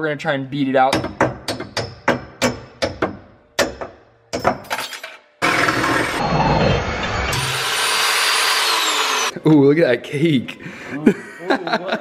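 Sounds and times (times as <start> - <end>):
hammer striking metal: 0.9 - 4.8
power tool running loudly: 5.4 - 9.3.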